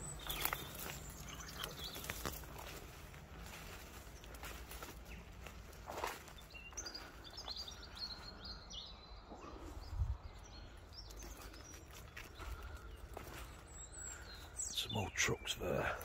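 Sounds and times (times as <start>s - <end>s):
low outdoor rumble: 0.0s - 7.2s
small birds chirping: 0.0s - 16.0s.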